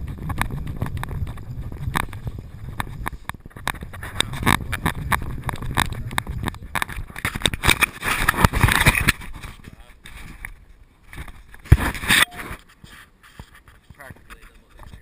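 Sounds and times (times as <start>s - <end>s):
wind on microphone: 0.0s - 12.6s.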